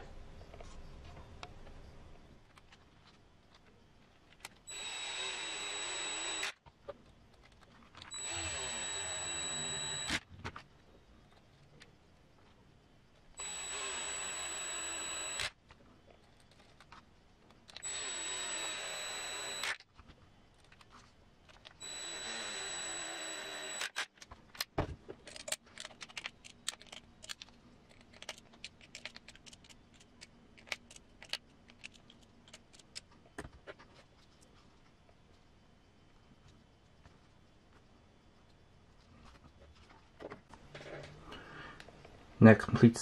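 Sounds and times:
cordless screwdriver driving screws: 4.7s - 6.5s, 8.1s - 10.2s, 13.4s - 15.5s, 17.8s - 19.8s
plastic parts clicking: 23.8s - 33.5s.

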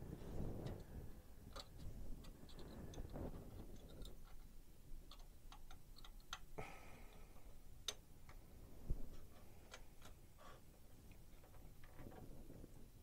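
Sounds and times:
plastic parts clicking: 0.6s - 6.6s.

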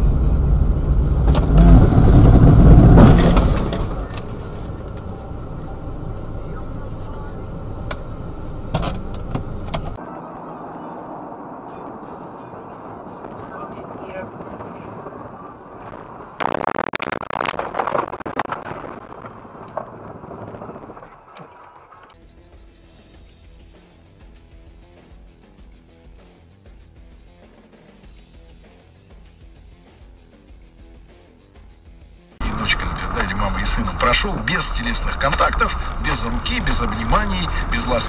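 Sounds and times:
vehicle collision crunching impacts: 0.0s - 10.0s, 32.4s - 38.0s
car engine and road rumble: 0.0s - 23.6s, 32.4s - 38.0s.

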